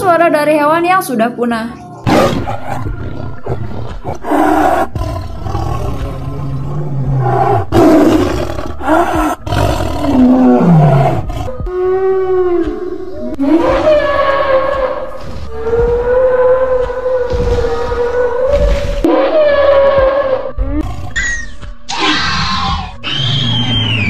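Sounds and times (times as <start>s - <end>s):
big cat roaring and snarling: 2.1s - 21.3s
long deep tonal animal calls: 8.4s - 24.0s.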